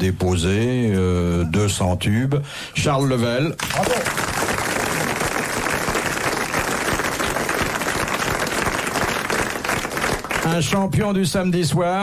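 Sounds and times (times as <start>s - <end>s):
audience applauding: 3.6s - 10.9s.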